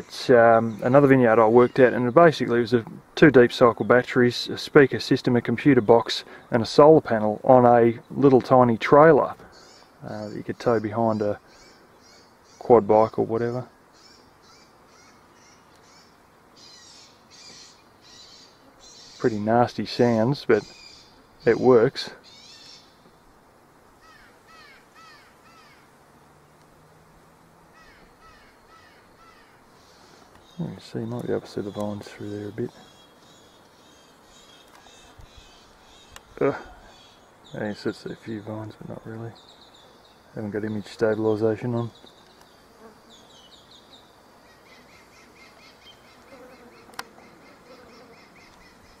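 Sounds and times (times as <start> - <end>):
recorded bird distress calls: 9.4 - 23.4, 24.0 - 49.0
crow-like caws from a speaker: 24.0 - 25.9, 27.7 - 30.3.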